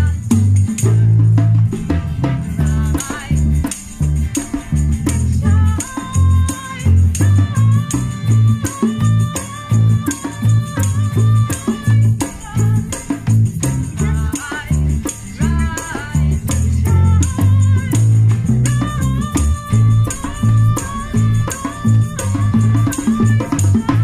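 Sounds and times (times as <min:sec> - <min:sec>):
acoustic guitar: 0:00.0 - 0:24.0
bongo hits: 0:00.0 - 0:24.0
electric bass notes: 0:00.0 - 0:24.0
shaker rattling: 0:00.0 - 0:24.0
high wavering melody: 0:19.0 - 0:24.0.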